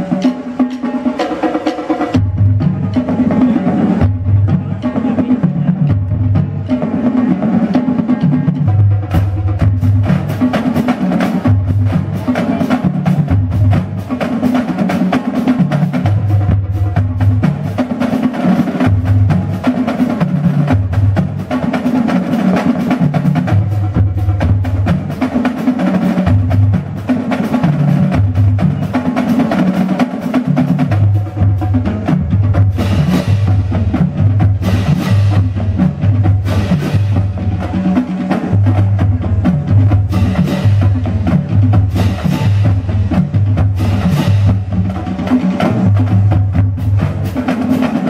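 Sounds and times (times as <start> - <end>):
marching drumline playing: 0.0 - 48.0
bass drum notes: 30.5 - 47.5.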